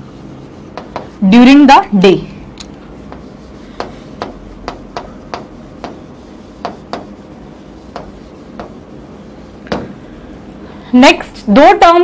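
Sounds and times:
chalk tapping on chalkboard: 0.0 - 1.9, 2.6 - 10.2.

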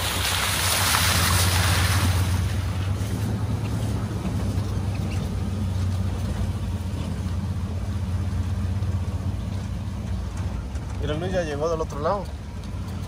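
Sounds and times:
vehicle engine drone: 0.0 - 13.0.

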